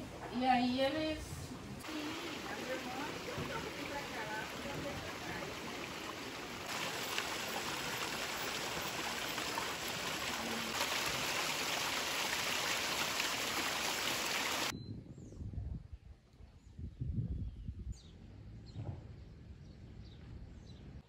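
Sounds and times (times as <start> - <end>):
water splashing over stones: 1.8 - 14.7.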